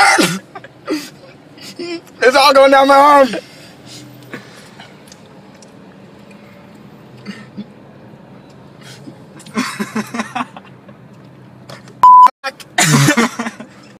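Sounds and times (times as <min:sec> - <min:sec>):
censor bleep: 0:12.0 - 0:12.3.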